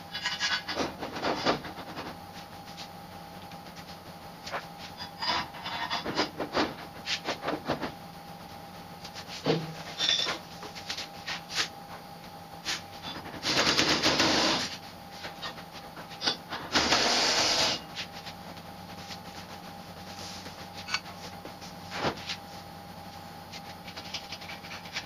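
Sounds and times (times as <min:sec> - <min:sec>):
pneumatic impact wrench: 0:13.4 - 0:14.8, 0:16.2 - 0:17.8.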